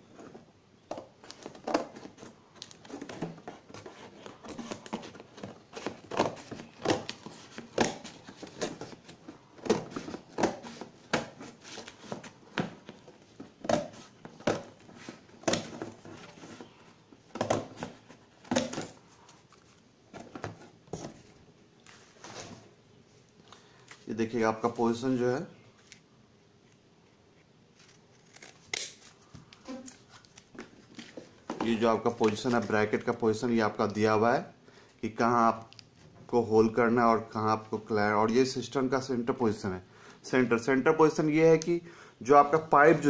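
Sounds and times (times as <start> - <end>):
cardboard crinkling: 1.0 - 22.6.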